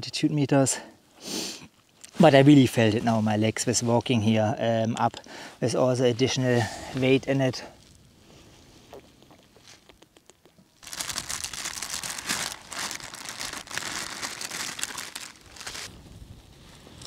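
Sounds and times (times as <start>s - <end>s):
plastic food bag crinkling: 10.8s - 16.0s.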